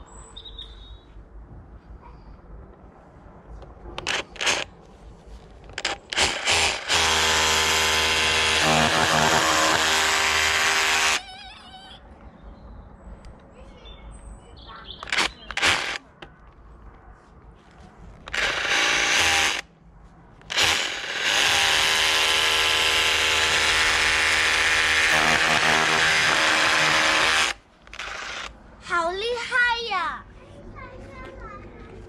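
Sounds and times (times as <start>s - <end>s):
power drill drilling into wall: 4.0s - 4.7s, 5.8s - 11.2s, 15.0s - 16.0s, 18.3s - 19.6s, 20.5s - 28.5s.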